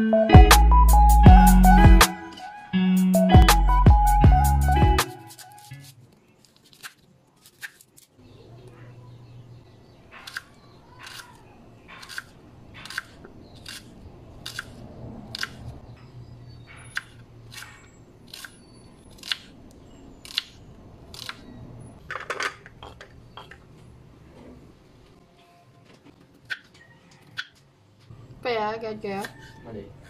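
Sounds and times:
knife slicing onion on board: 10.1 - 15.6.

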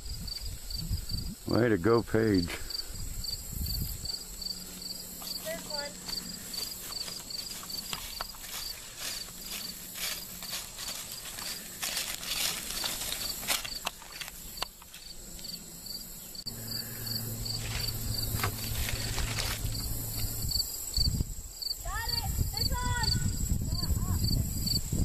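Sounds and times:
insect chirping: 0.0 - 25.0
low steady hum: 2.8 - 21.5
footsteps in grass and dry leaves: 4.0 - 15.8, 16.4 - 21.2.

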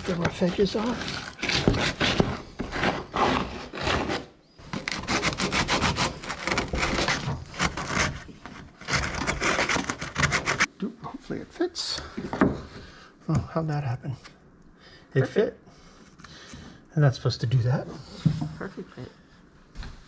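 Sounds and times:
abrasive scraping fibreglass: 0.0 - 10.7.

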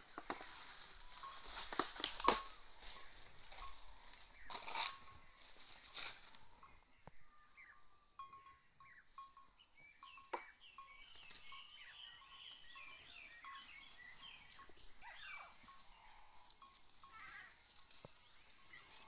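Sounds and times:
animals chirping: 6.5 - 19.0.

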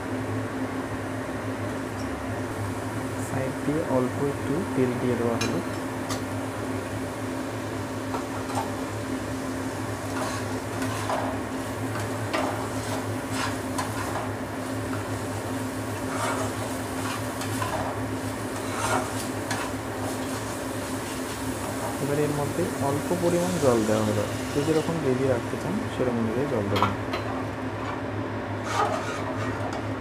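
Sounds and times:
steady low hum: 0.0 - 30.0
light frying sizzle: 0.4 - 29.2
spatula scraping a pan: 10.1 - 11.3, 12.4 - 14.2, 16.0 - 17.9, 18.5 - 20.2, 28.6 - 29.8.

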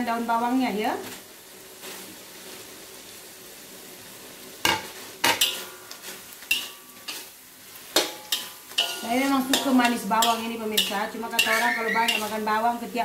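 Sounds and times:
food sizzling in wok: 0.0 - 13.0
metal spatula scraping wok: 4.7 - 13.0.

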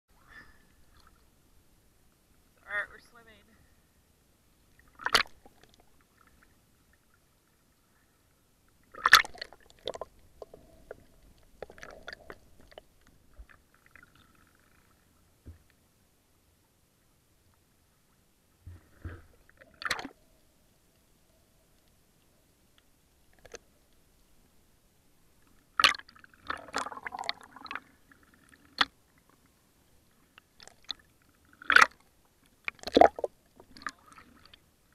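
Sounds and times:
faint water ticks: 0.2 - 4.0, 4.6 - 15.9, 16.6 - 34.9
water splash: 4.9 - 5.4.

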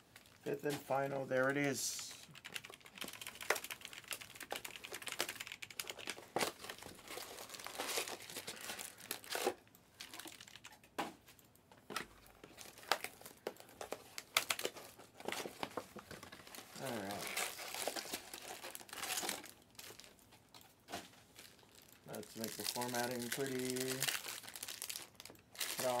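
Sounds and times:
computer keyboard clicks: 2.4 - 6.0
foil card packs crinkling: 2.8 - 10.8, 11.9 - 26.0.

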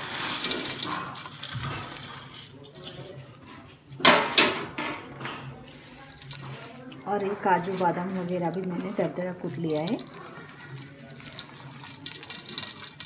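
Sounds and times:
dry pieces rustling in steel plate: 0.0 - 4.5, 5.2 - 13.0.

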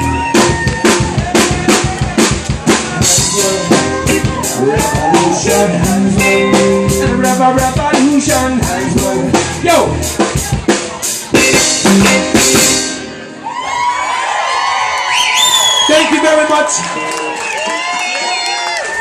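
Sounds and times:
drum kit hits: 0.0 - 13.2
reggae band playing: 0.0 - 14.1.

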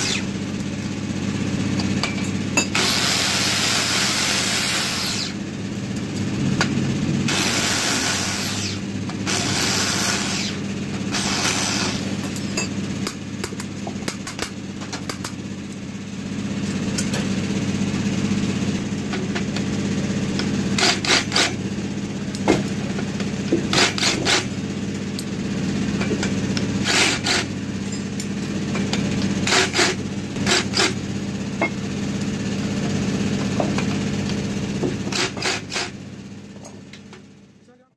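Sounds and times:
angle grinder grinding metal: 0.0 - 0.4, 2.6 - 5.4, 7.2 - 12.7, 20.7 - 21.6, 23.7 - 24.6, 26.8 - 28.1, 29.4 - 31.0.

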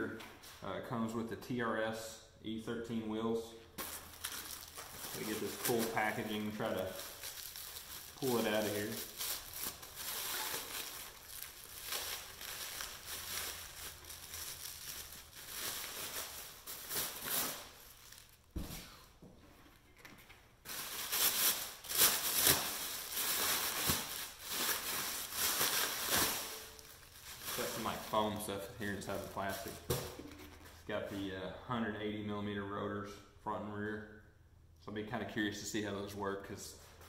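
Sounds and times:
plastic wrap crinkling: 3.8 - 18.6, 20.0 - 30.8.

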